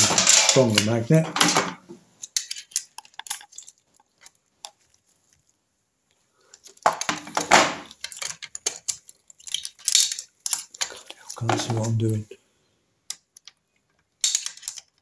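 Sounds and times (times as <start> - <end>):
metal parts clattering: 0.0 - 4.3, 6.5 - 12.1, 14.2 - 15.0.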